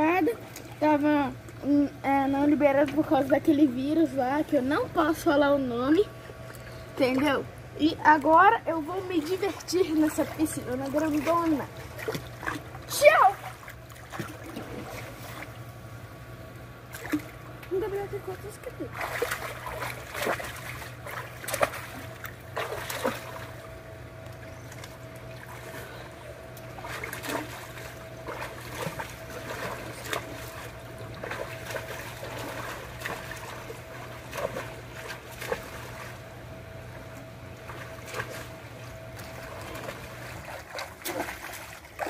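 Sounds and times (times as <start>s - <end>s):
water lapping: 0.0s - 15.8s, 16.8s - 42.0s
steady low hum: 0.0s - 42.0s
swimmer splashing in pool: 9.0s - 15.7s, 18.8s - 24.0s, 24.7s - 42.0s.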